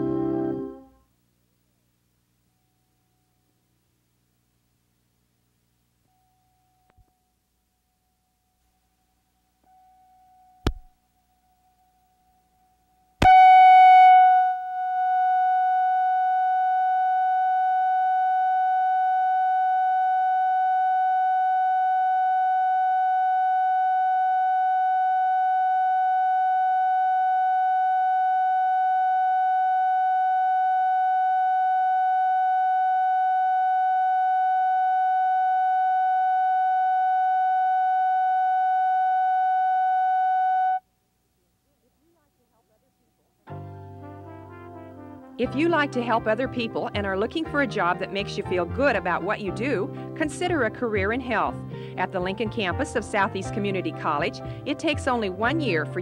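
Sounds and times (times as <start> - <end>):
click: 6.9 - 7.1
steady electronic reference tone: 13.2 - 40.8.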